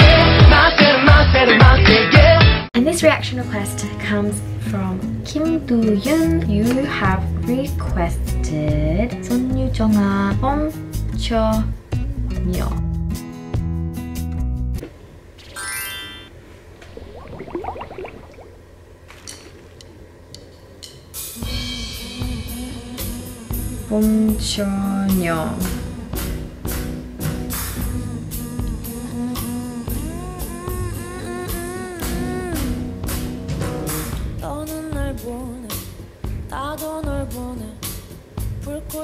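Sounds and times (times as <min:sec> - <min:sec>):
woman singing: 0:00.0 - 0:11.7, 0:21.4 - 0:26.3, 0:27.8 - 0:33.0, 0:34.4 - 0:35.9, 0:36.5 - 0:37.9, 0:38.6 - 0:39.0
live band with drum kit: 0:25.6 - 0:28.0, 0:31.5 - 0:34.3.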